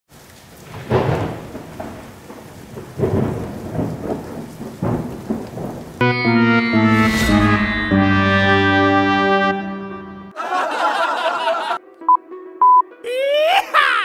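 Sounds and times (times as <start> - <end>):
rain hissing: 0.1 - 7.9
thunder rumbling: 0.6 - 10.0.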